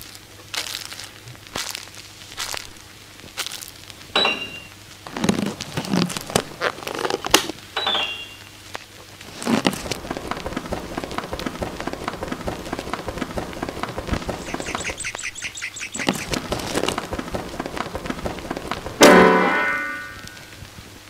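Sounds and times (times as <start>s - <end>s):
crinkling and crackling: 0.0s - 21.0s
short high chirps: 7.8s - 8.5s.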